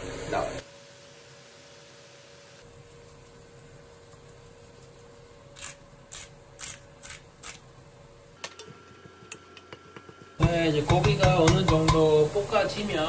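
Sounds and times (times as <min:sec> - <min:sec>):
pepper grinder clicks: 0:05.6 - 0:07.6.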